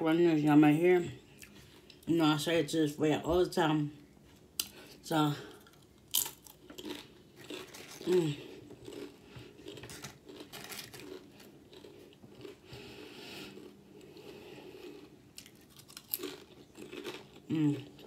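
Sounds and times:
person crunching chips: 0:05.5 - 0:12.6, 0:13.4 - 0:18.0
person humming: 0:08.0 - 0:08.5, 0:17.5 - 0:18.0.

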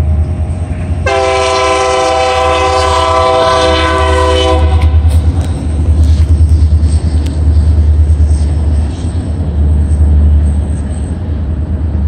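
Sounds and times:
locomotive air horn blast: 0:01.0 - 0:05.3.

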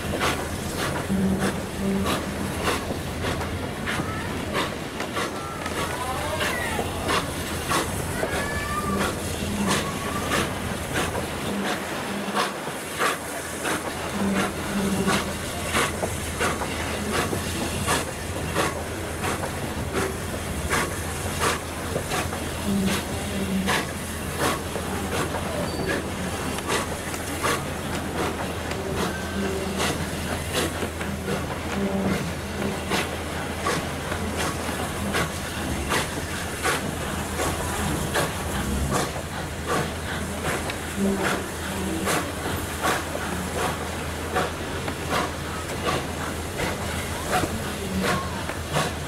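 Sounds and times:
low train running rumble: 0:00.0 - 0:49.0
train wheels clicking over rail joints: 0:00.0 - 0:49.0.

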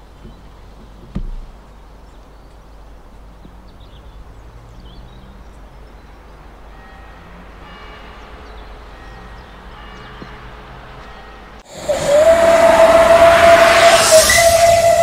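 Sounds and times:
faint background noise: 0:00.0 - 0:11.8
steam whistle blowing: 0:11.1 - 0:15.0
hissing steam: 0:11.6 - 0:15.0.

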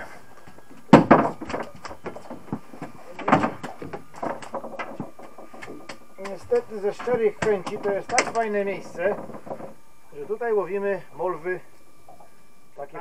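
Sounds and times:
small knocks and clicks: 0:00.4 - 0:09.8
heavy thuds on boat deck: 0:00.8 - 0:09.8.

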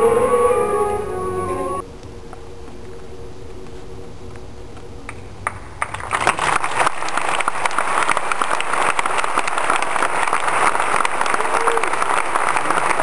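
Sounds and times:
orchestra music: 0:00.0 - 0:01.8
audience applauding: 0:05.1 - 0:13.0.

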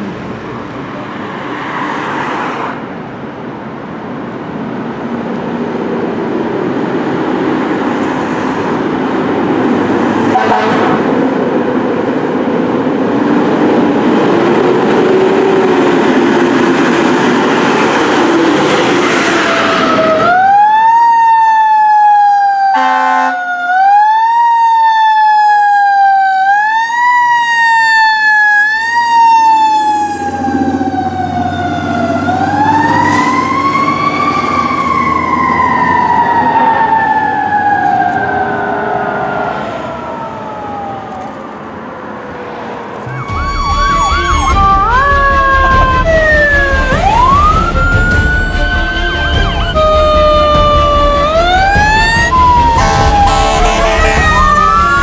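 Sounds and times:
truck engine passing: 0:05.8 - 0:20.6, 0:29.2 - 0:55.0
fire truck air horn: 0:10.2 - 0:11.2, 0:22.7 - 0:23.5, 0:43.2 - 0:47.4, 0:48.2 - 0:55.0
electronic siren wailing: 0:18.9 - 0:41.6, 0:43.0 - 0:55.0.

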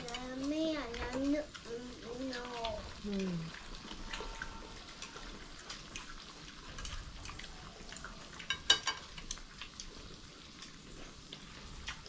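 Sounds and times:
meat sizzling: 0:00.0 - 0:12.0
tableware clink: 0:08.5 - 0:09.1.

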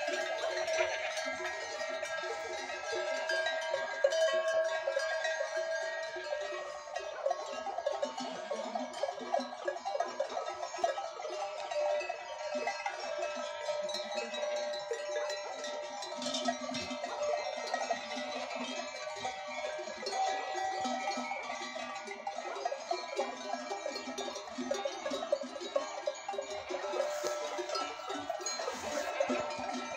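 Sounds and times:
goat bells clanking: 0:00.0 - 0:29.9
goat kids bleating: 0:23.6 - 0:29.9.

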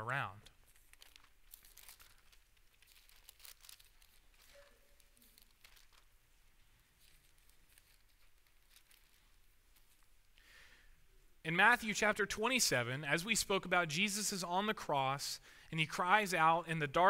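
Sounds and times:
thin paper pages turning: 0:00.4 - 0:10.1.

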